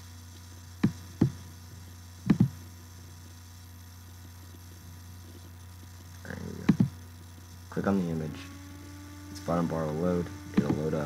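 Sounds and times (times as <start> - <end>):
electrical mains hum: 0.0 - 11.0
computer mouse clicks: 2.3 - 2.6.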